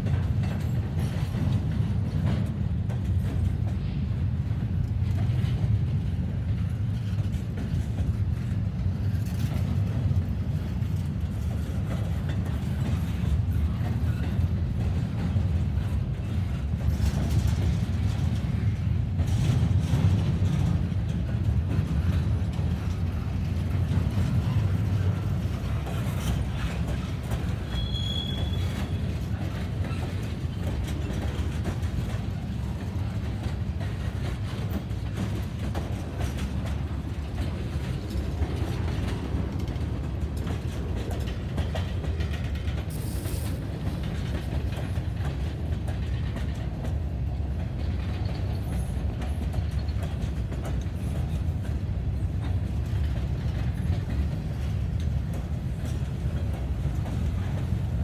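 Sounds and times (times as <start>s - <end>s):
freight train rumbling: 0.0s - 58.0s
wheels clicking over rail joints: 0.0s - 58.0s
train wheel squeal: 10.6s - 18.8s, 21.4s - 36.4s, 40.4s - 46.6s, 47.8s - 51.8s.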